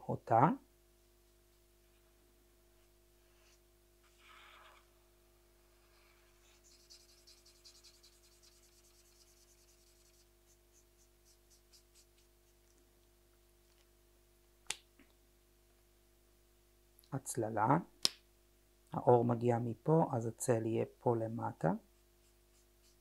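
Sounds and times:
marker rubbing on paper: 5.8 - 12.6, 22.2 - 23.0.

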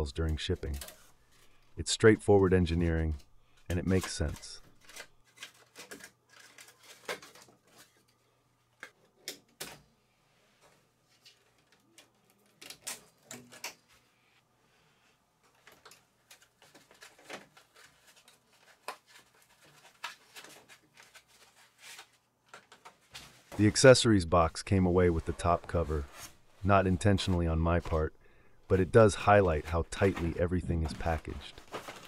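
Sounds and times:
rubbing of cardboard and foam: 24.7 - 28.0.

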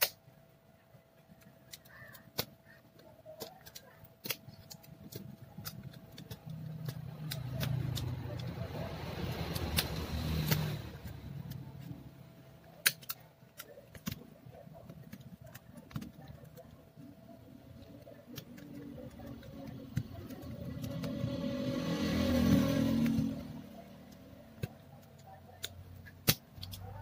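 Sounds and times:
vehicle engine running: 6.4 - 12.2, 18.9 - 24.7.

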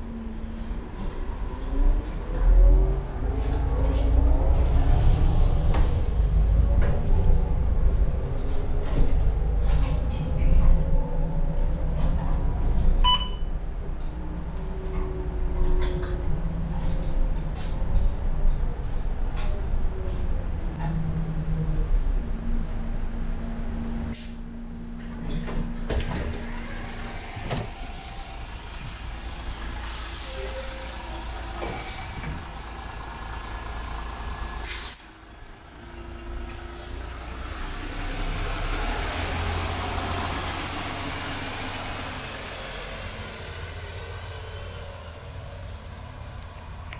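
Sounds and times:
bus engine pulling away: 0.0 - 46.9
air brake hiss: 24.1 - 24.5, 29.7 - 30.8, 34.6 - 35.1.

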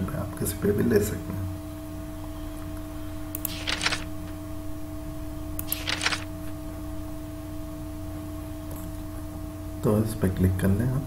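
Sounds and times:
steady electrical hum: 0.0 - 11.0
computer clicks: 3.3 - 4.1, 5.6 - 6.3.

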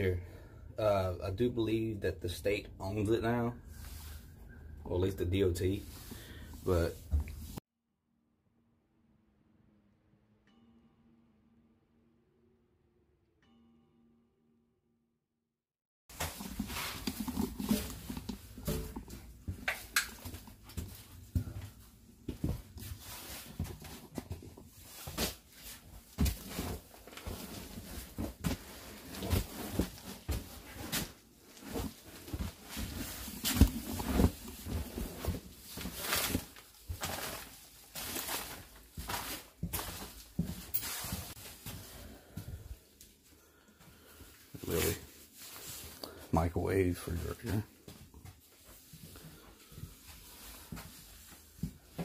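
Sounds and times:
footsteps on debris-strewn floor: 16.1 - 46.0, 47.8 - 52.0.

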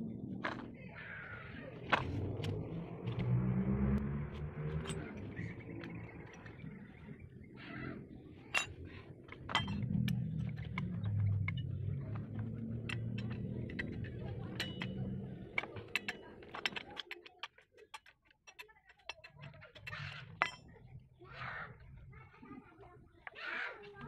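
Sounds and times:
spanners clinking on metal: 4.7 - 7.2, 8.3 - 21.0.

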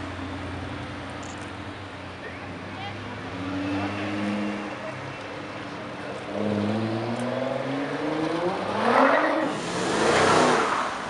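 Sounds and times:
car engines passing at low speed: 0.0 - 11.0
car pulling away with revs rising: 3.2 - 4.8, 6.1 - 11.0.

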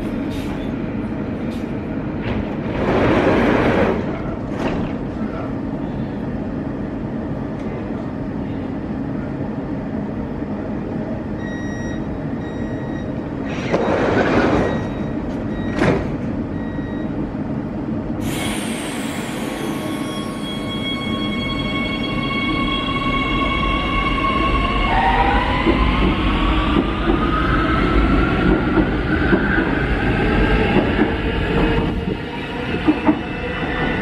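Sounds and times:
train doors sliding shut: 0.0 - 0.8, 1.4 - 5.5, 13.4 - 16.4
standing train hum: 0.0 - 34.0
door-closing warning beeps: 11.4 - 17.2.

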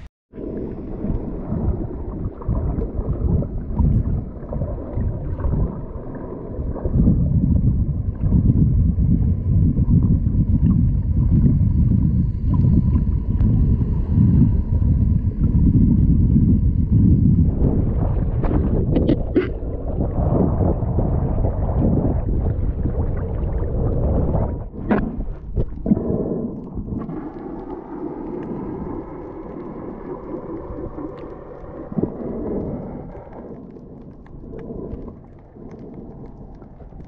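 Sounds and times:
wind buffeting microphone: 6.6 - 27.4.

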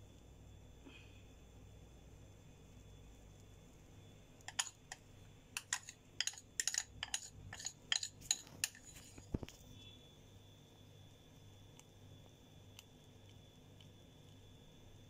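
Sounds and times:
metal spoon tapping bowl: 4.5 - 5.0, 5.6 - 9.1.

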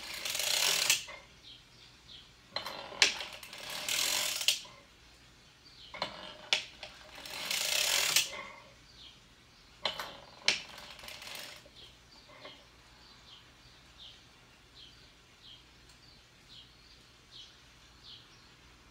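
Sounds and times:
knitting machine needles clattering: 0.0 - 1.2, 2.5 - 4.8, 6.0 - 8.7, 9.8 - 12.6.

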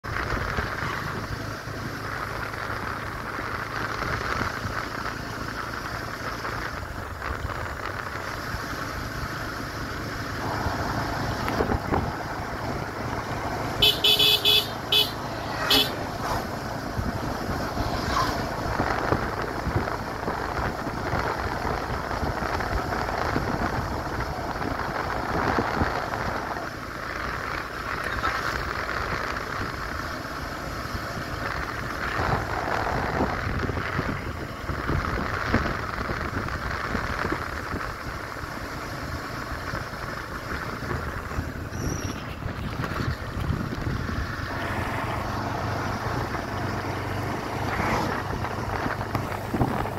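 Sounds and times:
motorcycle engine: 0.0 - 49.9
road noise: 0.0 - 49.9
wind buffeting microphone: 11.0 - 13.4, 39.8 - 49.9.

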